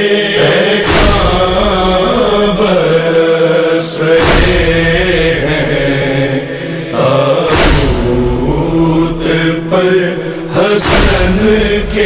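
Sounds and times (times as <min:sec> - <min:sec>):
person chanting lament: 0:00.0 - 0:12.0
heavy thuds: 0:00.8 - 0:02.7, 0:04.2 - 0:05.5, 0:07.5 - 0:09.6, 0:10.8 - 0:12.0.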